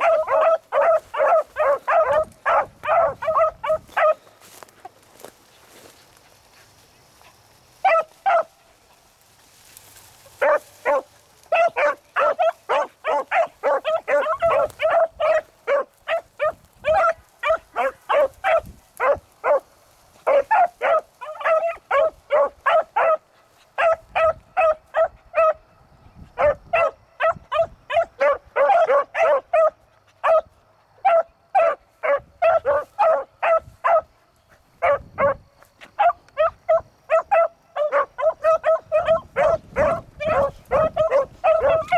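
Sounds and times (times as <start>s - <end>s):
dogs baying and barking: 0.0s - 9.1s, 10.4s - 25.7s, 26.3s - 41.9s.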